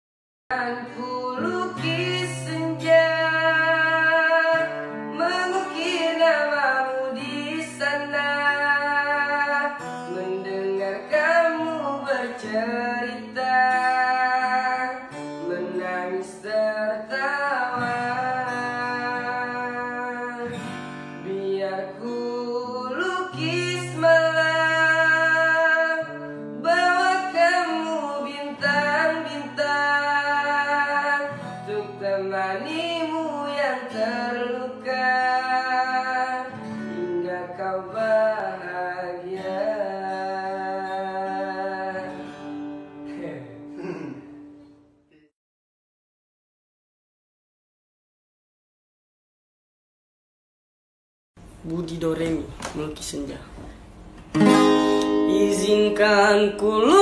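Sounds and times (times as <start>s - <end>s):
young man singing a ballad: 0.5s - 44.2s, 54.6s - 57.0s
acoustic guitar: 0.5s - 45.3s, 51.4s - 57.0s.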